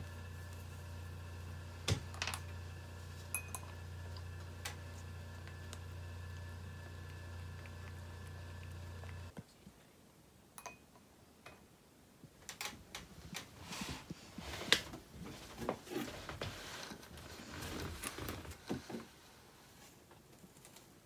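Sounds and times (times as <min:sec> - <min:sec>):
cloth rustling: 0:13.2 - 0:21.0.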